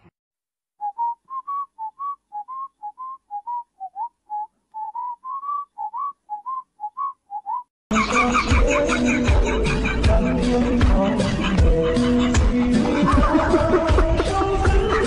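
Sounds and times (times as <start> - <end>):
person whistling a tune: 0.8 - 7.7
loud music with a beat: 8.0 - 15.0.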